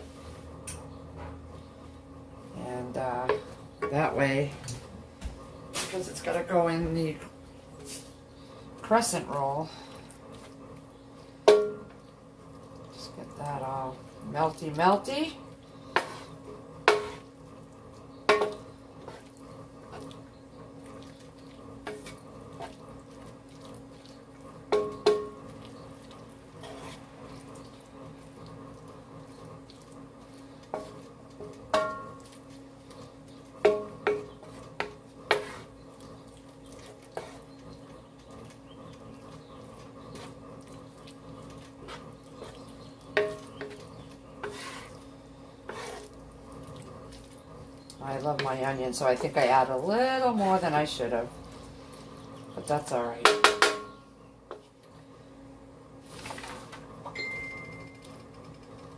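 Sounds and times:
faint steady hum: 0.0s - 58.9s
spatula knocking against pan: 11.5s - 11.9s, 18.3s - 18.6s, 24.7s - 25.4s, 30.8s - 32.2s, 33.6s - 35.6s, 43.1s - 43.8s, 53.2s - 54.0s
spatula scraping a skillet: 14.8s - 20.2s, 20.8s - 27.8s, 29.8s - 38.6s, 39.3s - 47.4s.

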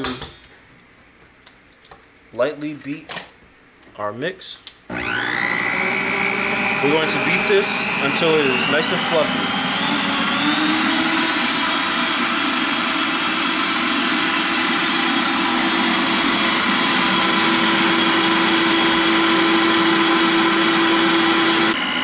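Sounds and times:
electric stand mixer whining: 4.9s - 22.0s.

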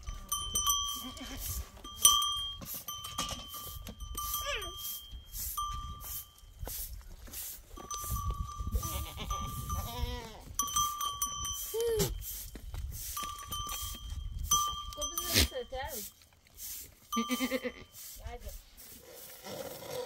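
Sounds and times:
animal neck bells clanking: 0.0s - 6.7s, 7.6s - 18.4s
sheep bleating: 8.8s - 10.4s, 17.2s - 17.9s.

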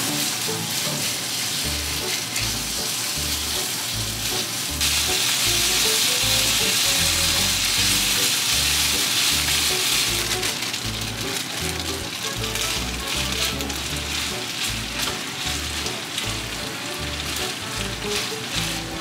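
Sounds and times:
chopsticks stirring: 0.0s - 19.0s
pork sizzling in a frying pan: 0.0s - 19.0s.

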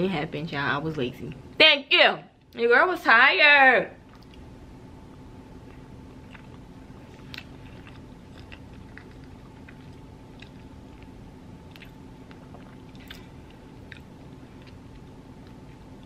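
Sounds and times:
steady low hum: 0.0s - 16.0s
person chewing food: 4.0s - 16.0s.

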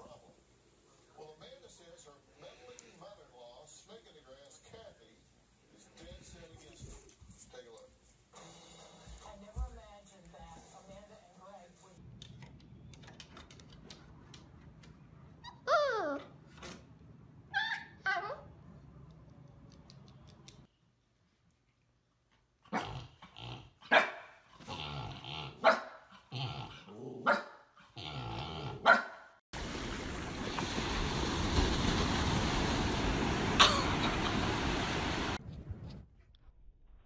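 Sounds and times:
puppy barking and yipping: 28.8s - 29.3s.

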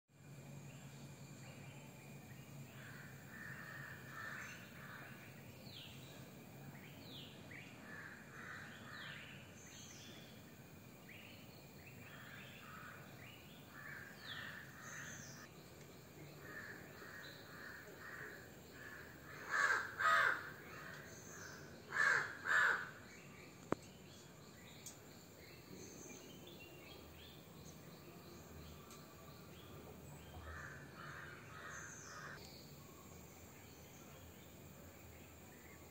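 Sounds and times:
soft bird calls and chirps: 0.4s - 35.9s
crows cawing: 16.5s - 21.0s, 21.9s - 23.0s, 30.4s - 32.4s.

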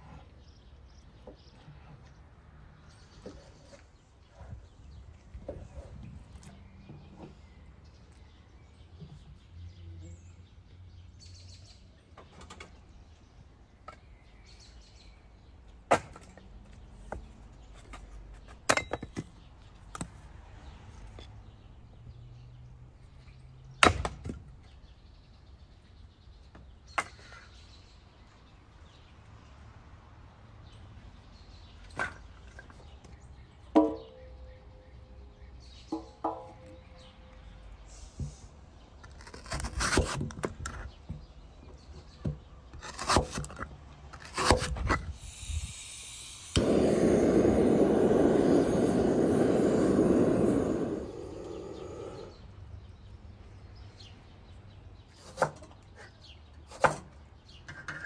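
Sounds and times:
axe splitting firewood: 15.9s - 16.3s, 23.8s - 24.4s, 42.8s - 45.0s, 46.6s - 52.3s.

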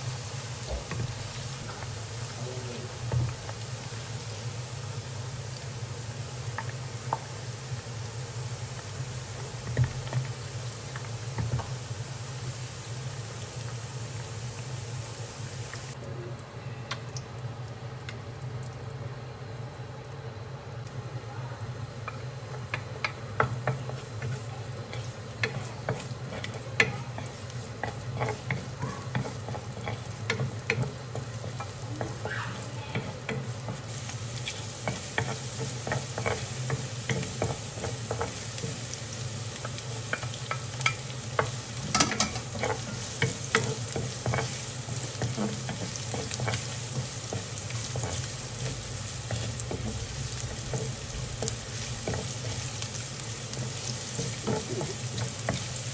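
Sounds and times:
garlic sizzling in oil: 0.0s - 16.0s, 17.0s - 55.9s
spatula scraping pan: 23.4s - 39.0s.

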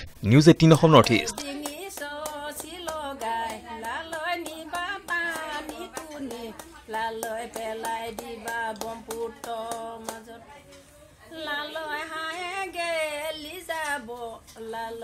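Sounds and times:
hands clapping: 1.3s - 10.4s
woman singing folk song: 1.3s - 15.0s.

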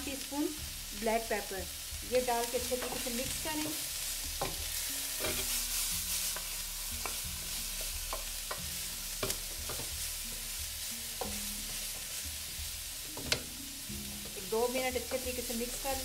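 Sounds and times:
vegetables sizzling in wok: 0.0s - 16.0s
spatula knocking and scraping pan: 2.5s - 5.7s, 6.3s - 10.3s, 11.1s - 13.6s.

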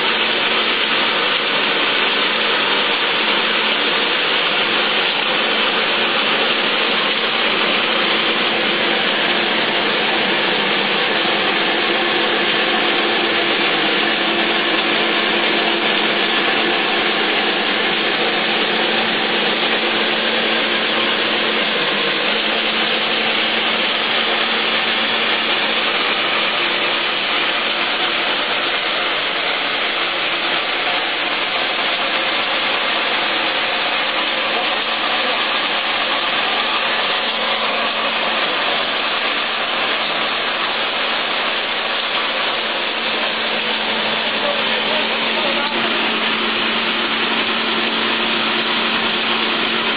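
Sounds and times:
machine whirring: 0.0s - 49.9s.

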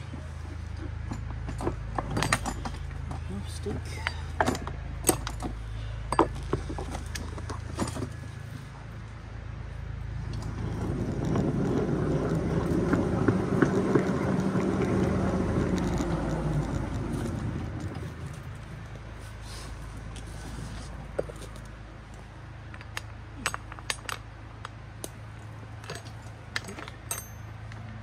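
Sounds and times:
wheel and car rattle: 0.0s - 8.4s, 10.2s - 18.9s
small train rolling on track: 10.3s - 18.6s.

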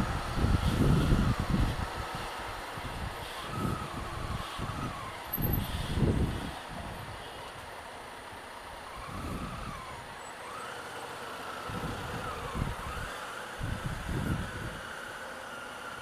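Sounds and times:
wind rumbling on microphone: 0.0s - 7.2s, 9.0s - 10.1s, 11.6s - 14.9s
motorcycle riding slowly: 0.0s - 16.0s.

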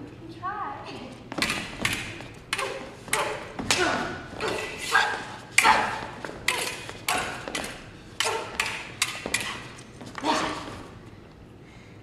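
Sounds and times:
steel blades clashing: 8.2s - 9.7s.

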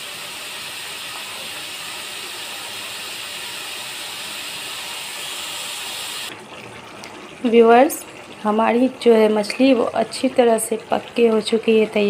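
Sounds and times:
fish sizzling in oil: 0.0s - 6.3s.

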